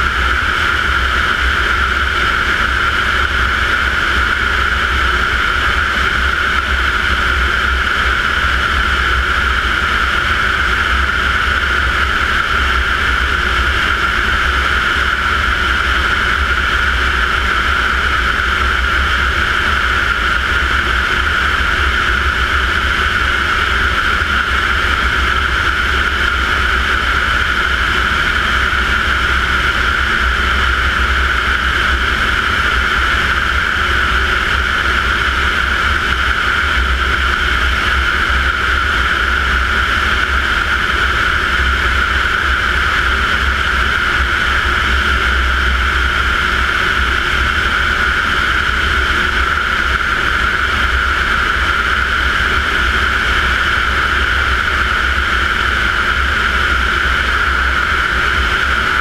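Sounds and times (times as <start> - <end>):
propeller rumble: 0.0 - 59.0
turbine engine whine: 0.0 - 59.0
wind noise: 0.0 - 59.0.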